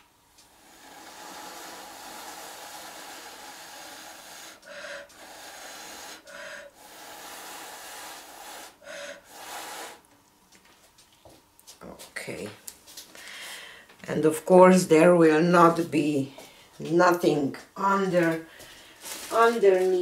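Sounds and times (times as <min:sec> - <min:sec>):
person blowing by mouth: 0:00.4 - 0:10.1
quick in-breaths: 0:00.5 - 0:10.0, 0:13.1 - 0:13.9, 0:18.5 - 0:19.3.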